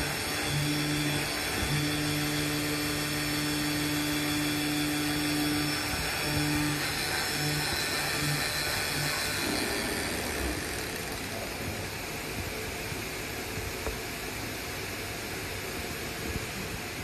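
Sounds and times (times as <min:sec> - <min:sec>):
pulsing machine hum: 0:00.0 - 0:12.7
steady machine hiss: 0:00.0 - 0:17.0.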